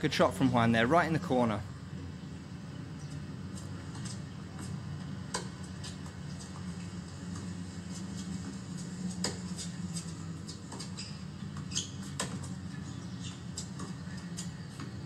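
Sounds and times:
steady low hum: 0.0s - 15.0s
racquets striking tennis ball: 3.9s - 6.7s, 7.3s - 15.0s
tennis ball bouncing: 3.9s - 6.7s, 8.2s - 15.0s.

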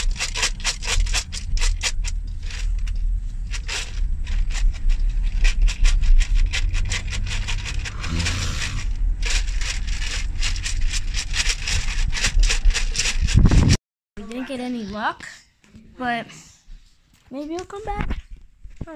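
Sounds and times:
scraping and rubbing on microphone: 0.0s - 13.8s.

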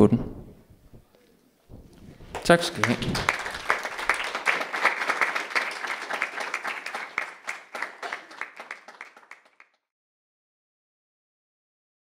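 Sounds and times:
audience applauding: 2.3s - 9.8s.

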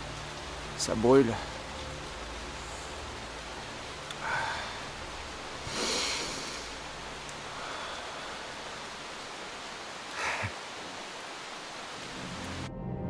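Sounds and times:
steady background hiss: 0.0s - 12.7s
man breathing hard: 4.2s - 4.9s, 5.6s - 6.8s, 7.4s - 8.7s.

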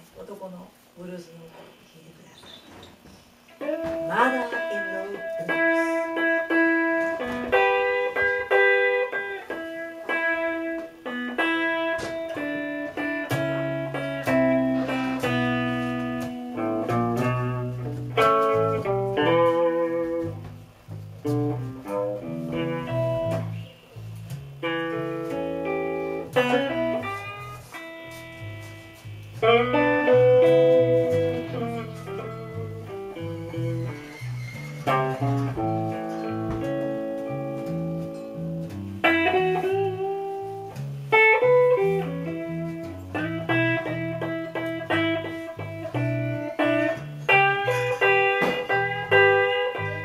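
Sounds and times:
electric guitars playing blues: 3.4s - 50.0s
bass line: 16.6s - 47.6s.

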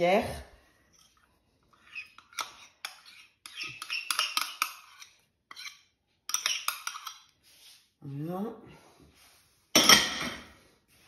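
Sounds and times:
utensil scraping metal bowl: 0.9s - 7.5s.

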